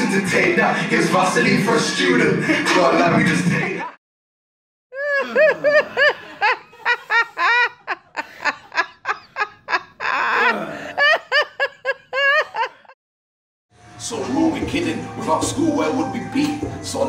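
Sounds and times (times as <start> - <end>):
person laughing hard: 5.0 - 13.0.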